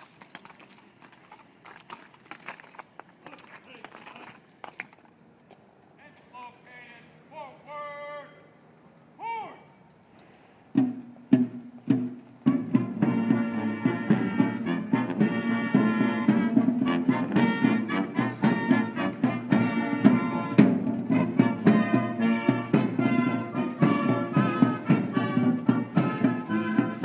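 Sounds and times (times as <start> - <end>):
steady drum beat: 10.8 - 27.0
brass band horns: 12.4 - 27.0.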